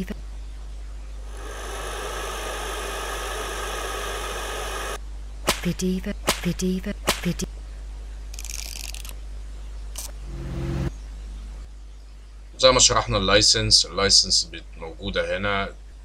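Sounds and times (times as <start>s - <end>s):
heat gun blowing hiss: 1.3s - 5.0s
sharp whip cracks: 5.4s - 7.3s.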